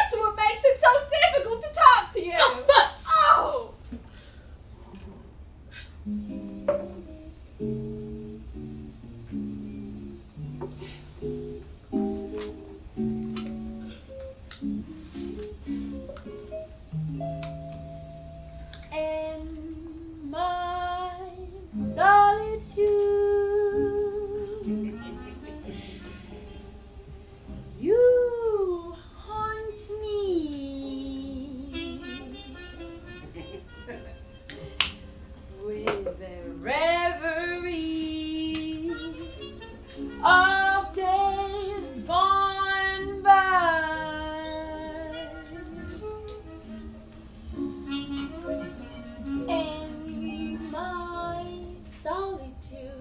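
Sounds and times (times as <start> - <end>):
backing music: 6.1 - 19.2, 21.3 - 28.4, 30.6 - 52.7
woman singing slow melody: 18.8 - 25.8, 27.7 - 32.6, 35.5 - 46.9, 47.9 - 53.0.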